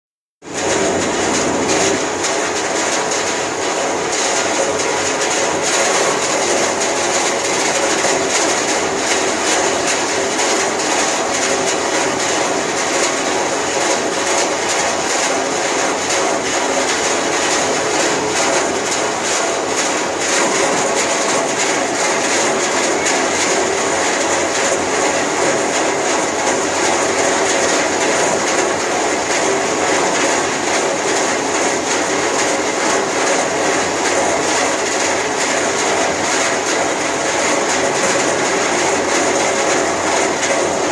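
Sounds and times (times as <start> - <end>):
crusher machine clattering: 0.5 - 40.9.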